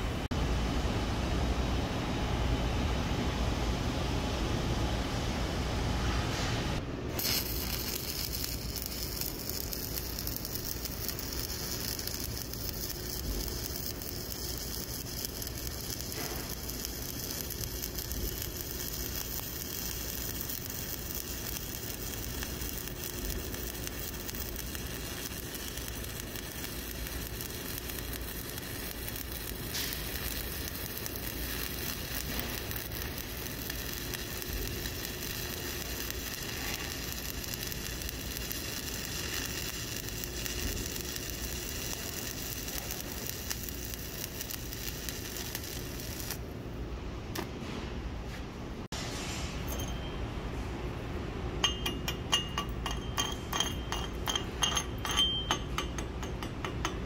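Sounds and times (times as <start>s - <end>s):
welding arc burning: 7.1s - 46.7s, 51.6s - 57.0s.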